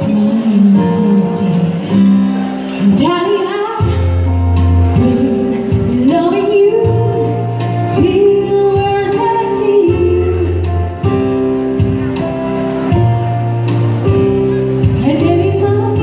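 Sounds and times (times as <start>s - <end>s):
woman singing pop ballad: 0.0s - 11.2s, 14.8s - 16.0s
keyboard backing with bass and beat: 0.0s - 16.0s.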